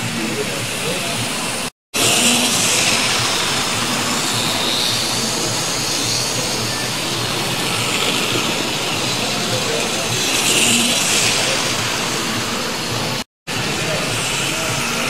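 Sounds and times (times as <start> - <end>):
model train running on track: 0.0 - 15.0
steady background noise: 0.0 - 15.0.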